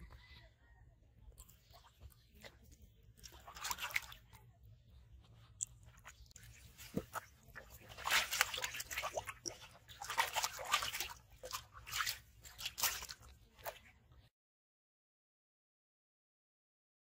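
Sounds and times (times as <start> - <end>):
fish splashing in water: 3.2 - 4.3, 5.9 - 13.8.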